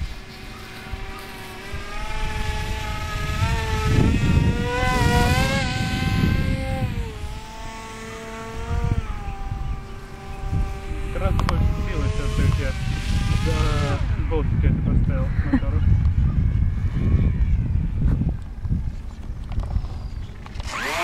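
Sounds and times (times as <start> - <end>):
rc plane motor and propeller whining: 0.0 - 21.0
wind rumbling on microphone: 0.0 - 21.0.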